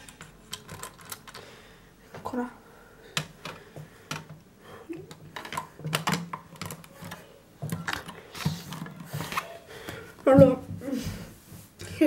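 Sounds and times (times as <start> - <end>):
plastic pieces clicking: 0.0 - 1.4, 5.0 - 9.4.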